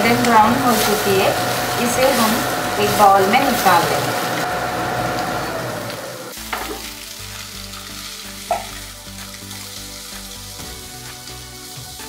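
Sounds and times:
food sizzling in hot oil: 0:00.0 - 0:12.0
soft background music: 0:06.3 - 0:12.0.

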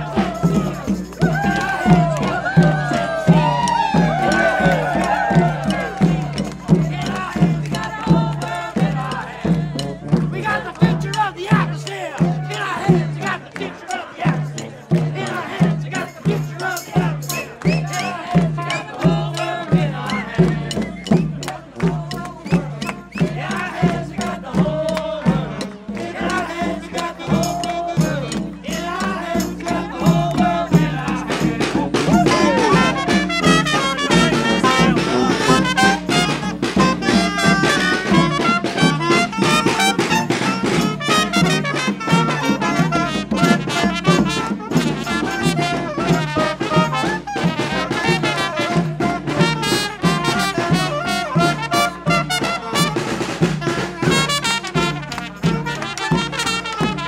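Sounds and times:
djembe hand drum beat: 0:00.0 - 0:57.0
street band playing jazzy music: 0:00.0 - 0:57.0.

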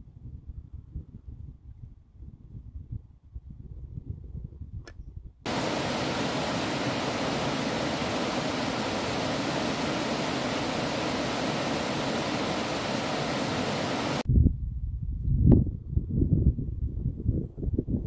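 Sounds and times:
water rushing over rocks: 0:05.5 - 0:14.2.

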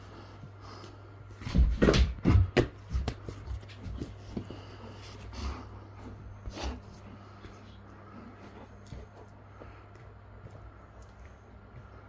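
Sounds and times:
dog playing with ball thumps: 0:01.4 - 0:04.6.

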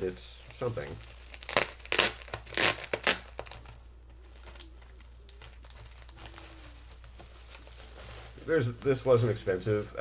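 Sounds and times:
plastic packaging crinkling: 0:00.5 - 0:09.4.

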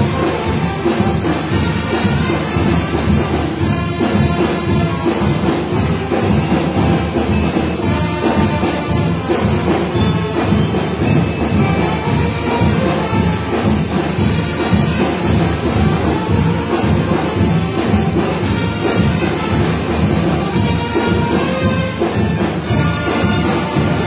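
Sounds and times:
bass drums and percussion: 0:00.0 - 0:24.0
trumpets: 0:00.0 - 0:24.0.

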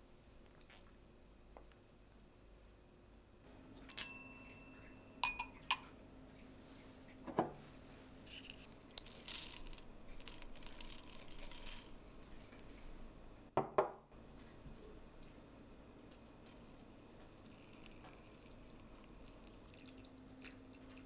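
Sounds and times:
light metal clinks: 0:03.9 - 0:05.9, 0:08.8 - 0:12.9
dried tea rattling into metal infuser: 0:08.9 - 0:12.0.

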